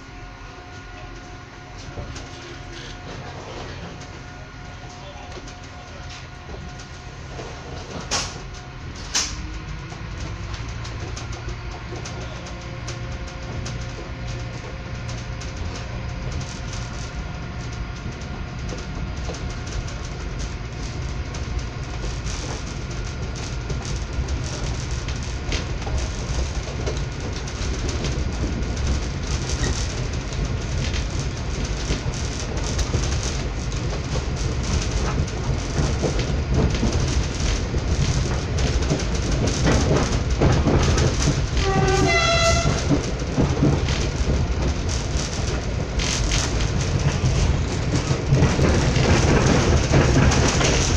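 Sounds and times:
train wheels rumbling on rails: 0.0s - 50.9s
train horn blast: 41.6s - 43.0s.

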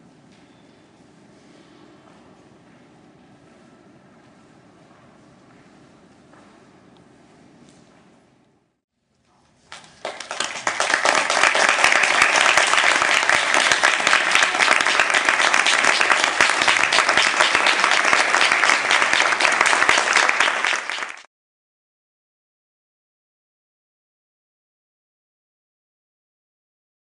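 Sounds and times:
audience applauding: 9.7s - 21.3s.

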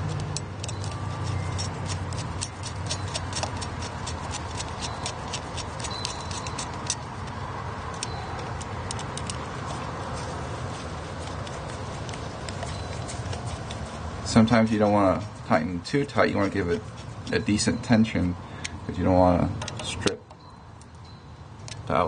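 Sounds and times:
screwdriver clicking on metal: 0.0s - 9.5s.

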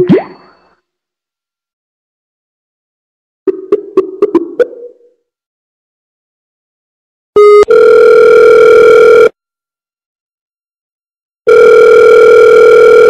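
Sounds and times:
telephone ringback tone: 7.4s - 9.4s, 11.5s - 13.0s.

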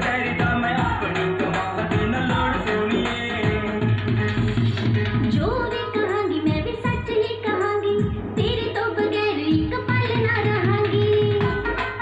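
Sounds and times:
song from cassette player speakers: 0.0s - 7.8s.

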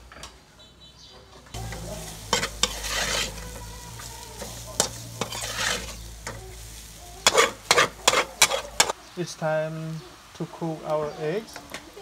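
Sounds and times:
frying sizzle: 1.5s - 12.0s
spatula scraping wok: 1.6s - 9.0s.

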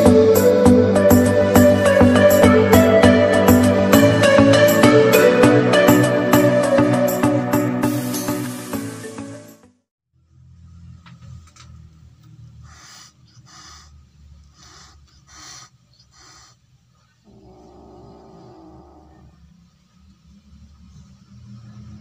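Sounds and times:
kitten hissing: 12.5s - 19.3s.

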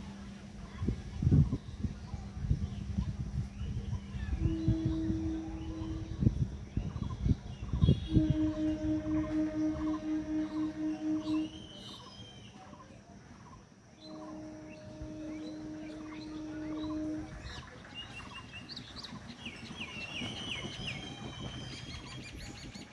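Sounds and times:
birds chirping: 2.1s - 12.6s, 14.0s - 22.9s
train horn blasts: 3.7s - 12.2s, 14.0s - 18.5s.

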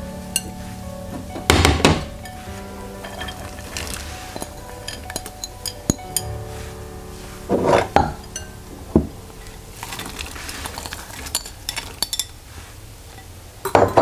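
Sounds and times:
vegetables pouring into pot: 3.0s - 5.5s, 9.4s - 12.3s
glass bowl clinking on pot: 3.0s - 6.3s, 8.0s - 8.5s.

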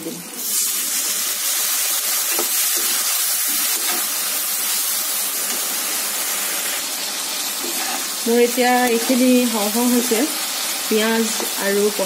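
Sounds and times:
water sizzling in hot oil: 0.0s - 12.0s.

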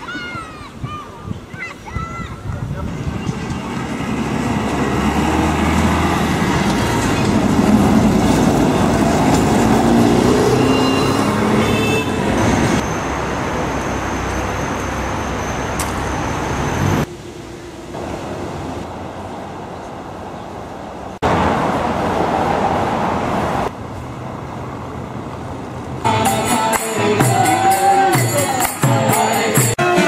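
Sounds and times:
city street traffic: 0.0s - 30.0s
bus engine running: 2.7s - 22.2s
brief high squeals: 10.6s - 12.2s.

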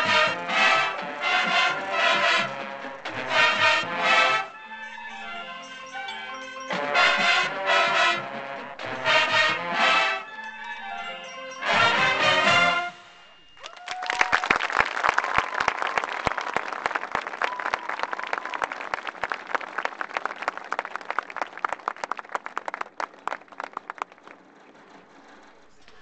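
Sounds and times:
audience applauding: 13.5s - 25.2s.

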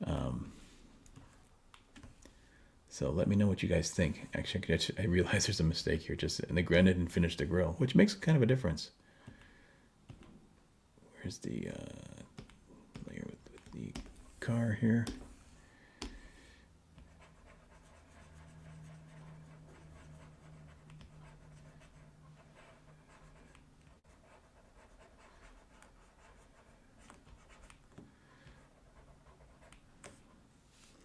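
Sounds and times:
faint low hum: 0.1s - 31.0s
stylus scratching on drawing tablet: 17.0s - 30.4s.

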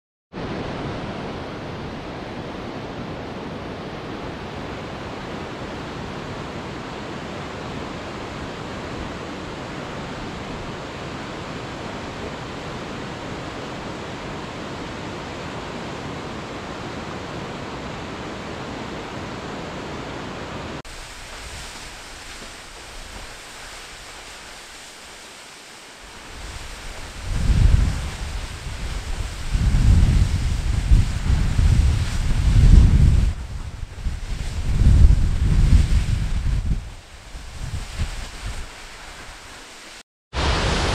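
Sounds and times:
waterfall roaring: 37.0s - 40.9s.

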